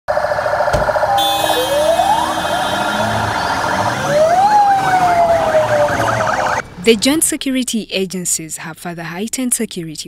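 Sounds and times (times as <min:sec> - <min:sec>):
sirens rising in pitch: 0:00.1 - 0:06.6
vehicle engines: 0:00.4 - 0:07.7.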